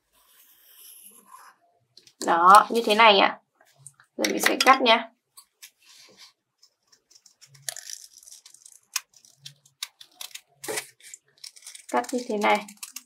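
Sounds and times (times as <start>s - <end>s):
scissors snipping paper: 7.3s - 13.0s.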